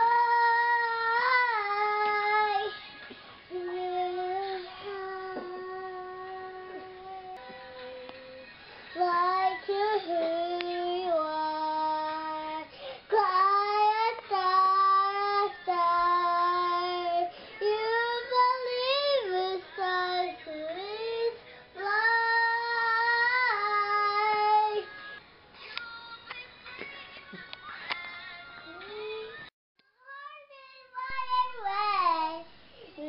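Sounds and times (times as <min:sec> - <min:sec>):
girl singing unaccompanied: 0:00.0 - 0:33.0.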